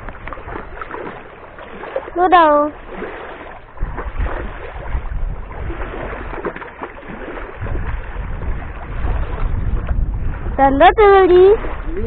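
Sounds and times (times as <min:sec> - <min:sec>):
fish thrashing and splashing: 0:00.0 - 0:10.5
heavy low rumble: 0:07.5 - 0:12.0.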